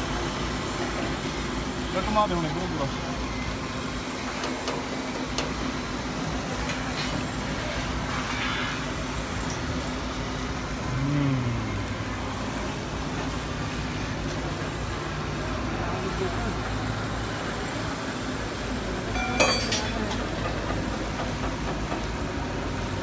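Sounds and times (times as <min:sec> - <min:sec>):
constant rumble and hiss: 0:00.0 - 0:23.0
low machinery hum: 0:00.0 - 0:23.0.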